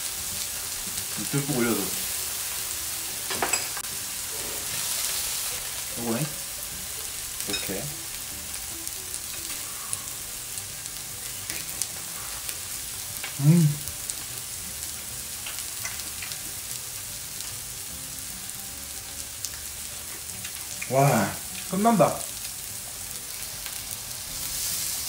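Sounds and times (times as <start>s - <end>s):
meat sizzling on a grill: 0.0s - 25.0s
man exclaiming: 13.4s - 13.9s, 20.9s - 22.2s.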